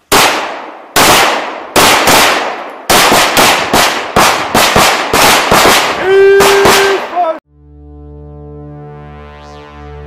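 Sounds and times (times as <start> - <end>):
pistol shots with echo: 0.1 - 7.2.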